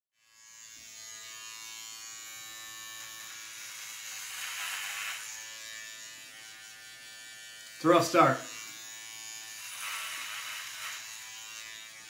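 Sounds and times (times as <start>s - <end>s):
electric hair trimmer buzzing: 0.2s - 12.0s.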